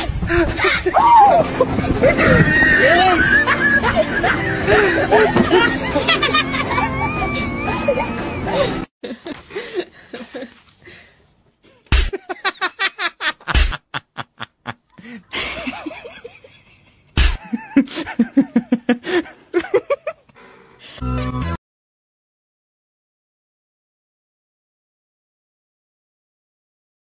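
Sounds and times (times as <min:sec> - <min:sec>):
person laughing hard: 0:00.1 - 0:10.6, 0:11.7 - 0:20.4.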